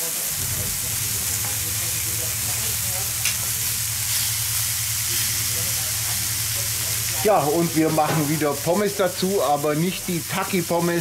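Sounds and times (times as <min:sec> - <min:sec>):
meat sizzling on a hot plate: 0:00.0 - 0:11.0
steady low hum: 0:00.3 - 0:07.8.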